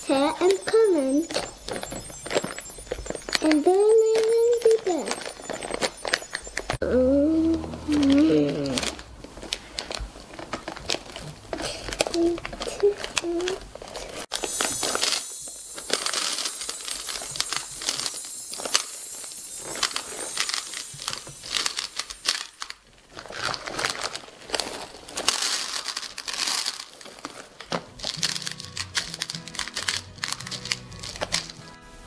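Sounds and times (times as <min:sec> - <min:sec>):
candies shuffled by hand clicking: 0:00.0 - 0:06.8, 0:07.5 - 0:31.8
foil bag crinkling: 0:07.8 - 0:31.8
candies clattering onto plastic plate: 0:19.7 - 0:31.6
music: 0:27.9 - 0:32.0.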